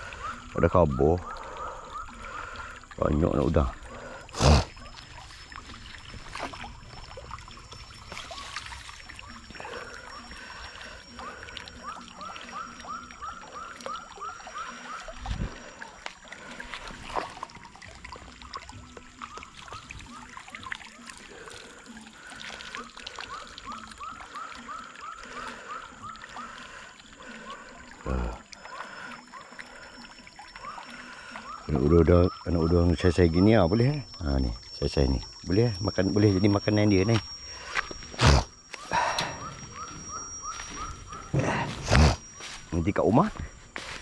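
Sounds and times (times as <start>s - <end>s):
frogs calling: 0.0s - 44.0s
water sloshing and trickling: 0.0s - 44.0s.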